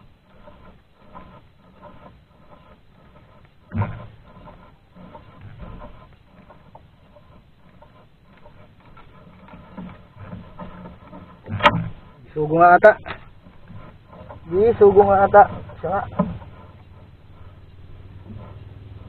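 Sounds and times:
fishing line rubbing and rustling: 0.0s - 19.0s
dull thump: 3.2s - 6.7s, 7.9s - 12.2s.

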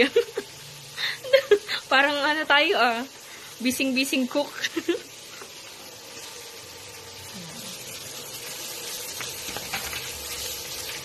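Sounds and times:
garlic sizzling in butter: 0.0s - 11.0s.

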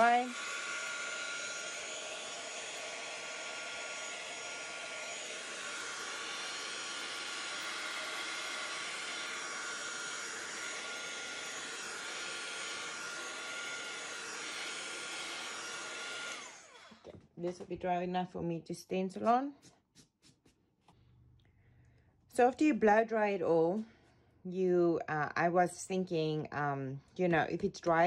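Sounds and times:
heat gun whining: 0.0s - 17.2s.

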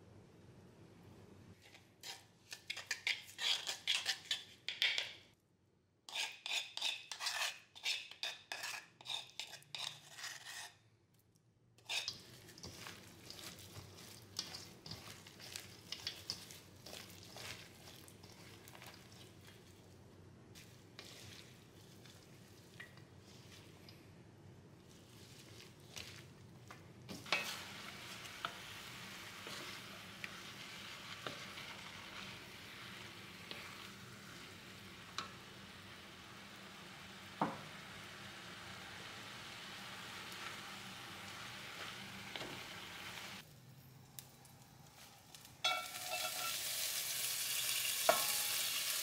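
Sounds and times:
vegetables tossed in metal bowl: 11.8s - 23.8s.

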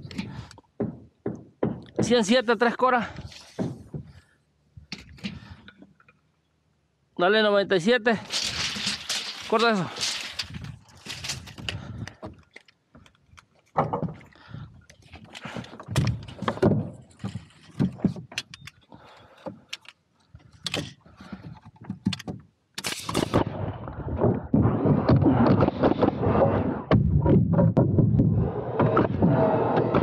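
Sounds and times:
footsteps on roof sheathing: 0.0s - 6.0s, 8.2s - 22.5s
lumber knocking on wood deck: 0.8s - 2.3s
pneumatic nailer firing: 8.3s - 11.6s, 22.8s - 23.5s.

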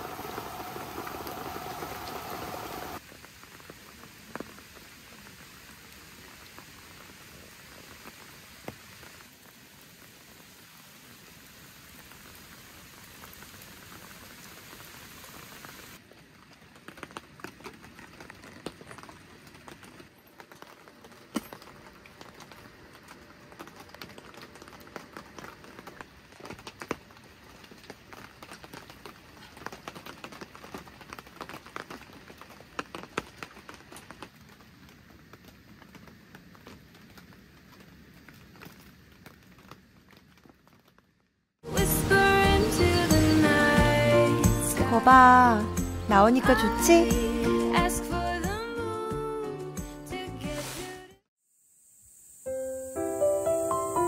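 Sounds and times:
rain hissing: 0.0s - 40.6s, 41.6s - 54.0s
raindrops pattering: 0.0s - 47.4s.

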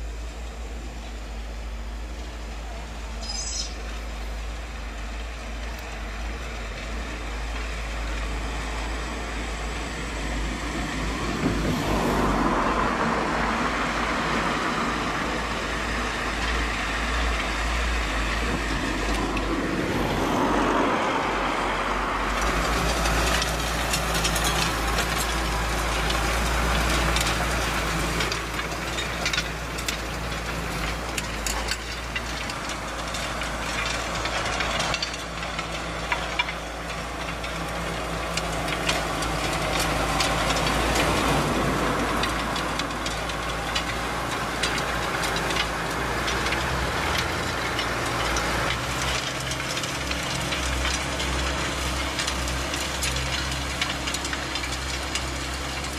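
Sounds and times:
tractor diesel engine under load: 0.0s - 55.9s
light metallic clatter: 22.4s - 55.9s.

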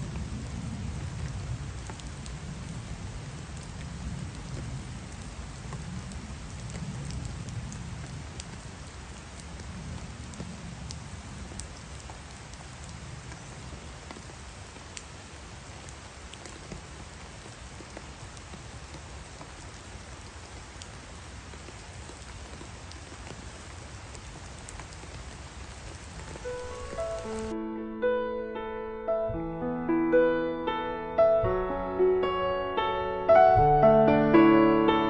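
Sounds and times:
sharp ticks of raindrops: 0.0s - 27.6s
steady rain hiss: 0.0s - 35.0s.

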